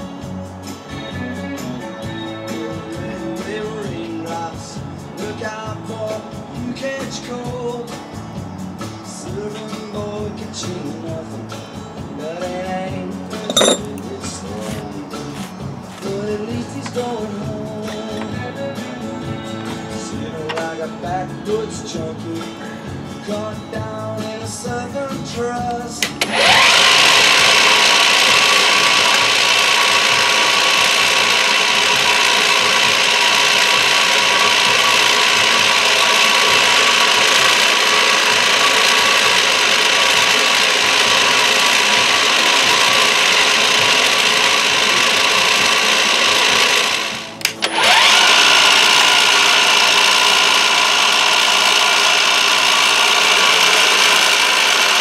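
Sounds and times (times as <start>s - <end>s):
milling machine cutting metal: 13.3s - 15.5s, 26.0s - 55.0s.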